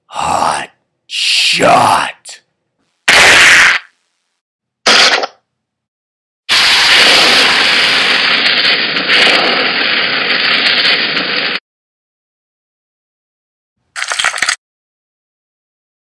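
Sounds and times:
flames burning: 6.5 - 11.6.

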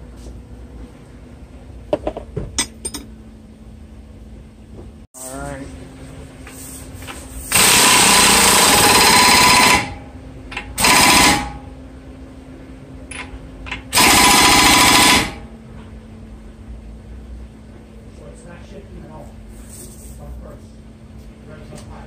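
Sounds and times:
impact wrench hammering: 7.5 - 11.6, 13.1 - 15.4.

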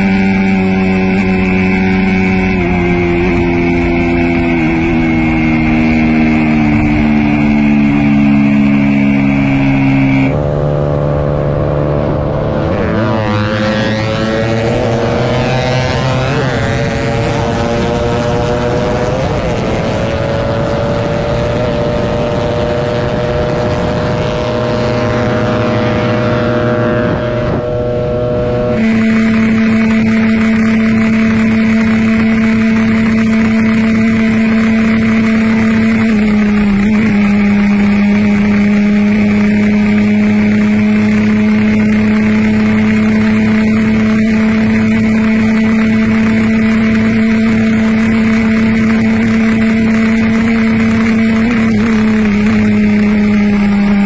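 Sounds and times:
motorcycle engine at high revs: 0.0 - 54.0
wind rush: 10.3 - 28.8.

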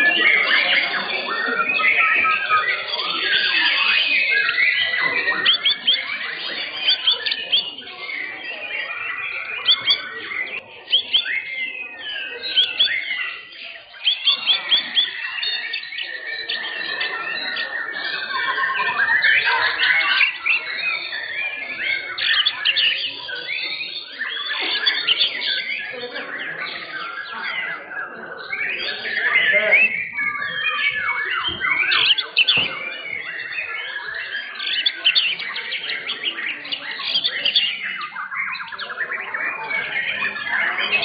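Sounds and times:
birds singing chorus: 0.0 - 41.0.

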